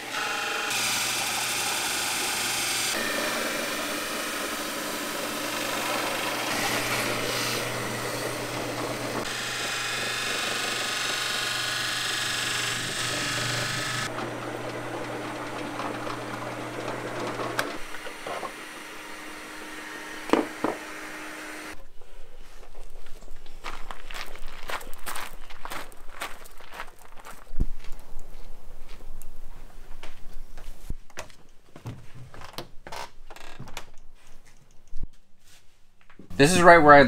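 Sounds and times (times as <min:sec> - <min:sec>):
power drill with hole saw: 0:00.0 - 0:21.8.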